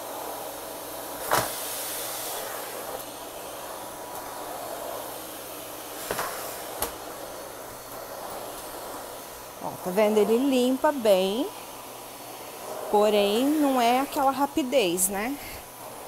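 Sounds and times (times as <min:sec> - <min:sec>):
vacuum cleaner running: 0:00.0 - 0:16.0.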